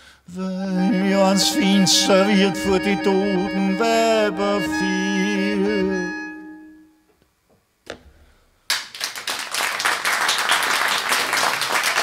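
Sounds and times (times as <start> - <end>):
person singing: 0.3 - 6.8
accordion chord: 0.4 - 7.1
audience applauding: 8.7 - 12.0.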